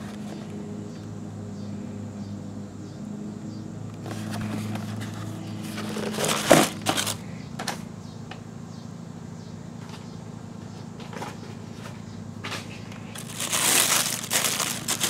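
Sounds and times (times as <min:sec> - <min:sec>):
cardboard lid scraping: 0:04.0 - 0:07.2
paper rustling and crackling: 0:04.0 - 0:07.2, 0:12.6 - 0:15.0.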